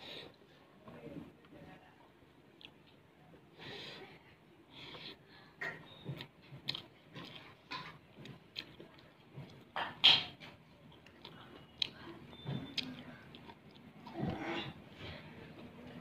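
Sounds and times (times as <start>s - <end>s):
person chewing: 2.6s - 3.0s, 5.9s - 15.0s.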